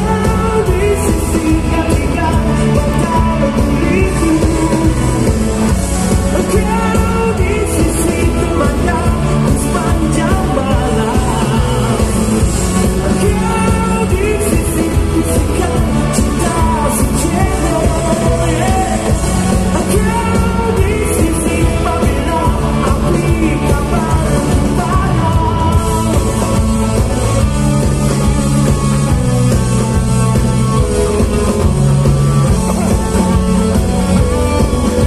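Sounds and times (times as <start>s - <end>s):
live pop-rock band with orchestra: 0.0s - 35.0s
man singing lead vocals: 0.0s - 35.0s.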